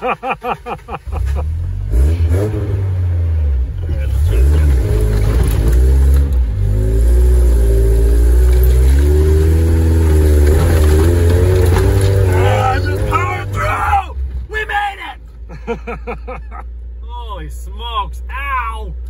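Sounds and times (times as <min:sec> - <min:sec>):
truck engine revving unevenly: 0:00.0 - 0:14.8.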